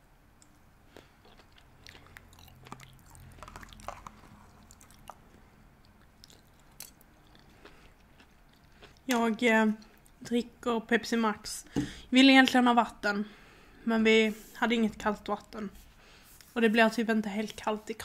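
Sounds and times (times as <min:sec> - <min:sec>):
faint chewing: 0:00.5 - 0:10.3.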